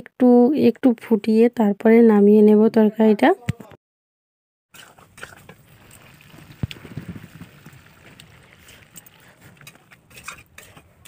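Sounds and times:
curry simmering: 4.8s - 11.0s.

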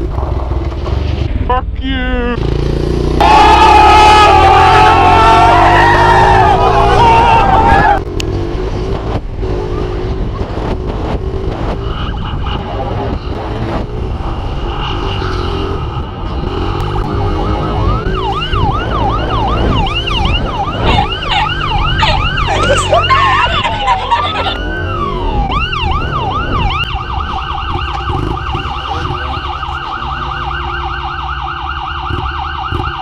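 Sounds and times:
police siren: 3.2s - 8.0s, 11.7s - 33.0s
wind noise: 7.3s - 29.8s.

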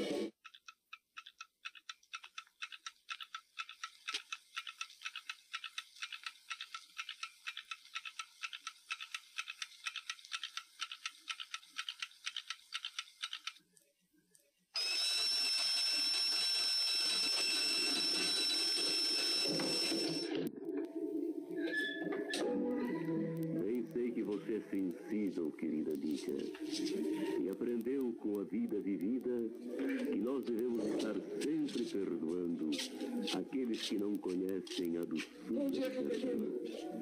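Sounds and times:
alarm clock ticking fast: 0.4s - 13.6s, 14.8s - 20.4s, 27.2s - 32.6s, 33.4s - 35.9s
alarm bell ringing: 14.8s - 20.4s.

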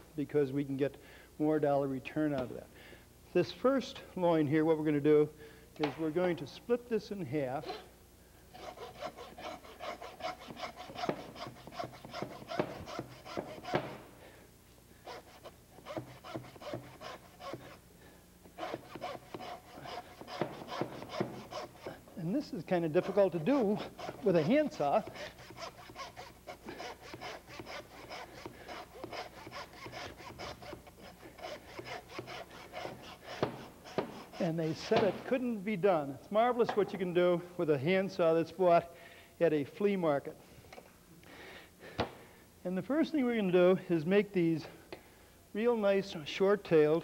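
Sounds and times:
handsaw rasping through bone: 8.5s - 14.0s, 15.0s - 17.8s, 18.6s - 22.0s, 22.8s - 34.6s.

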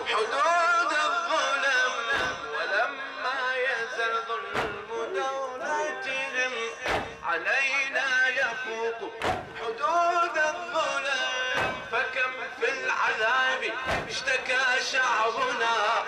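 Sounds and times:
man chanting over loudspeaker: 0.0s - 16.0s
chest beating thuds: 2.1s - 2.6s, 4.5s - 5.1s, 6.8s - 7.4s, 9.2s - 9.7s, 11.6s - 12.2s, 13.8s - 14.6s.

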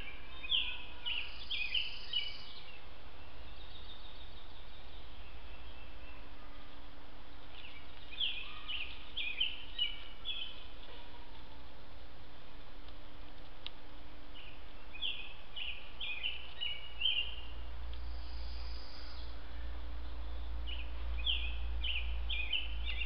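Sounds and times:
songbird singing: 0.0s - 23.0s
steady hiss: 17.4s - 20.2s.

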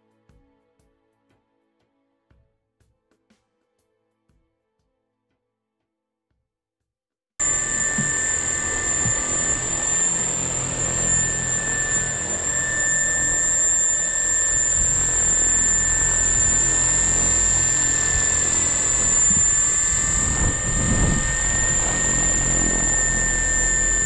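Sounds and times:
electric motor high whine: 7.4s - 24.0s.

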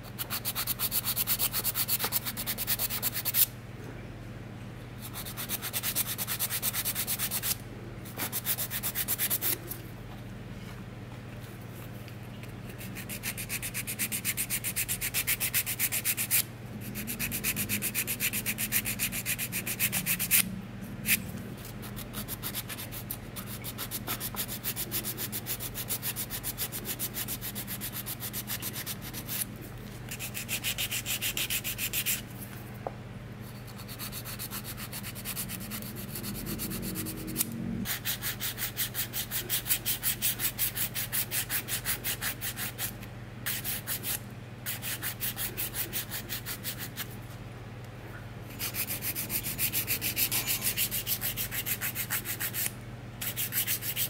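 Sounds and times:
nail file rasping: 48.6s - 54.0s.

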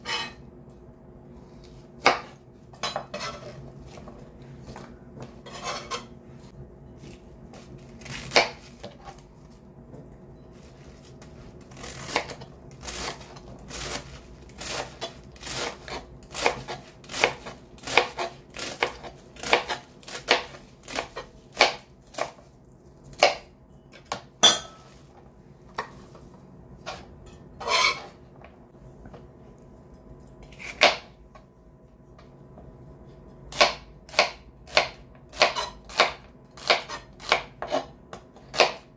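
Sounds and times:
knife chopping on cutting board: 14.6s - 22.4s, 23.1s - 24.8s, 30.6s - 31.1s, 33.5s - 38.9s.

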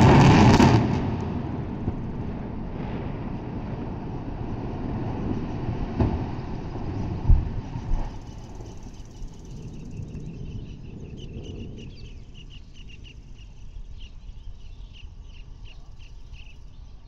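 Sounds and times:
loud explosive blast: 0.0s - 8.2s
low rumble of collapsing towers: 0.0s - 12.0s.

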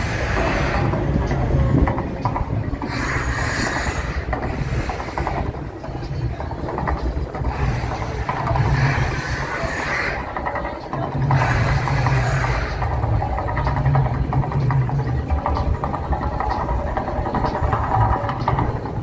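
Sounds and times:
deep steady rumble: 0.0s - 19.0s.

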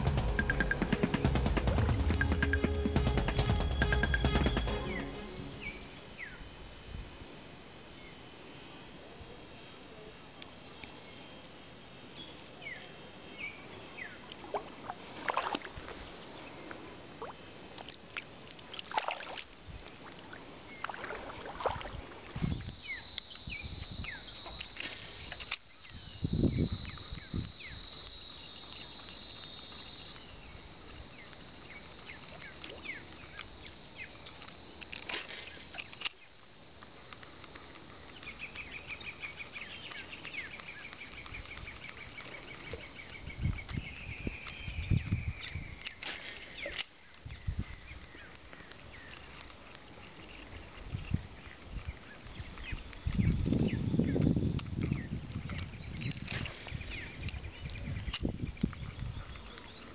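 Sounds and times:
short high chirps: 0.0s - 6.5s
steady high tone: 0.0s - 6.6s
splashes: 14.3s - 23.0s.

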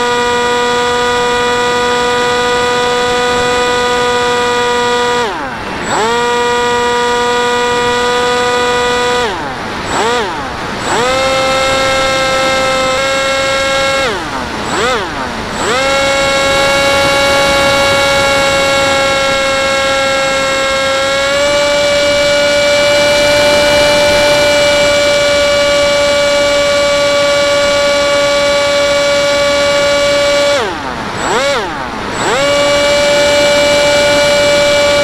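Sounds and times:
model plane motor whining: 0.0s - 35.0s.

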